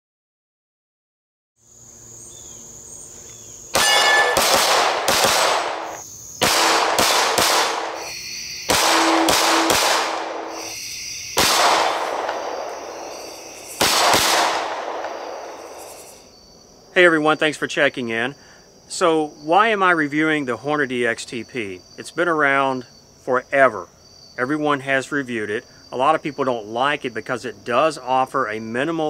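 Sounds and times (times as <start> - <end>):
insects chirping: 1.6 - 29.0
pistol shots echoing: 3.7 - 8.1, 8.7 - 10.7, 11.4 - 15.7
steel target ringing: 3.8 - 4.8, 7.8 - 10.7.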